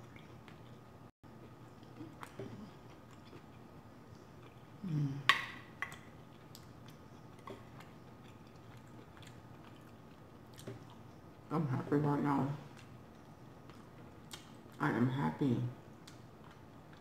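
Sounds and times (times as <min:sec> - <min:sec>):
wet chewing clicks: 0:05.3 - 0:11.4, 0:12.7 - 0:14.7.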